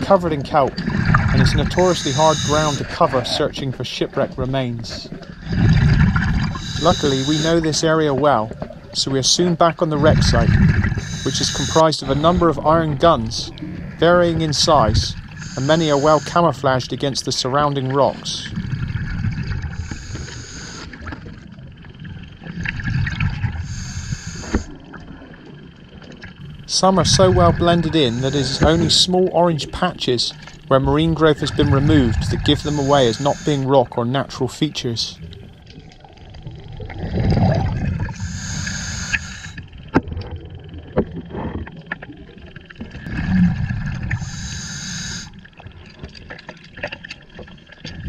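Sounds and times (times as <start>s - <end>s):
exhaled bubbles gurgling: 0.0s - 48.0s
bubbling exhale underwater: 5.1s - 7.0s, 35.2s - 46.0s
regulator hiss of inhaled air: 19.8s - 20.9s, 23.6s - 24.7s, 38.1s - 39.6s, 44.2s - 45.4s.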